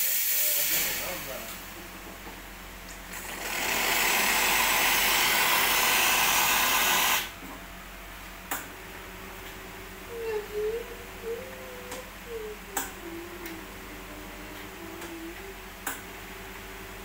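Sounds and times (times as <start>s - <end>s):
steam wand hissing: 0.0s - 1.4s, 3.3s - 7.3s.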